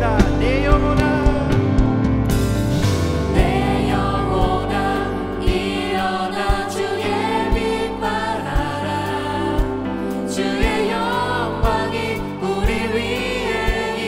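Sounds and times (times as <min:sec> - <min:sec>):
bass guitar: 0:00.0 - 0:14.0
keyboards: 0:00.0 - 0:14.0
group of vocalists singing: 0:03.3 - 0:14.0.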